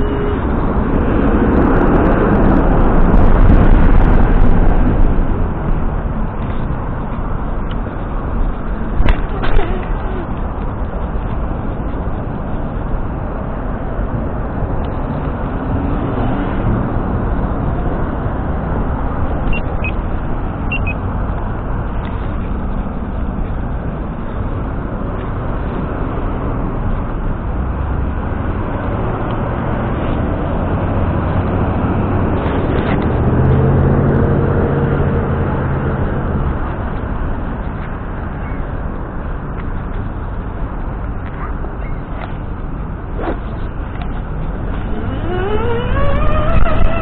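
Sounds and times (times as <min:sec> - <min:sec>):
vehicle passing close by: 0:00.0 - 0:06.0, 0:42.5 - 0:47.0
road traffic rumble: 0:00.0 - 0:47.0.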